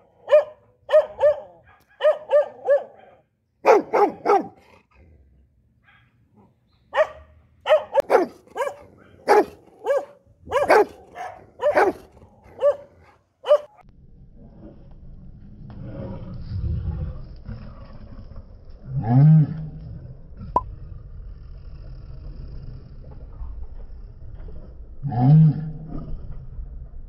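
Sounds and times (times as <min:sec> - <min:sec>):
dog barking: 0:00.2 - 0:04.6, 0:05.8 - 0:06.1, 0:06.9 - 0:13.8.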